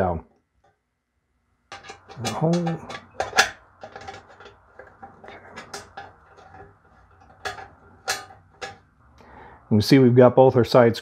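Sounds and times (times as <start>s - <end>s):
screws clinking against metal: 1.7s - 8.8s.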